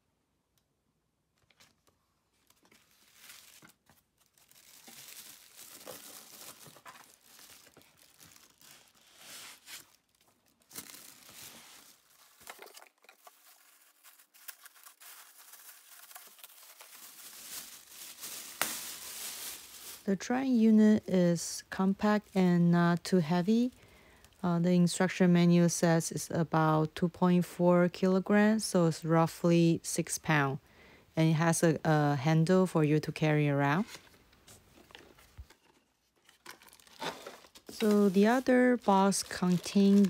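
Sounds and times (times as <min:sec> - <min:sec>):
packaging rustling and crinkling: 0:01.4 - 0:20.1, 0:33.9 - 0:40.0.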